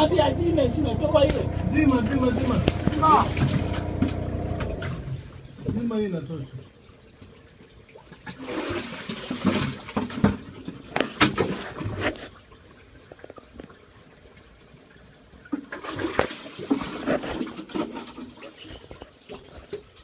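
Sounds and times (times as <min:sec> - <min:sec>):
water splashing in a well: 0:00.0 - 0:20.0.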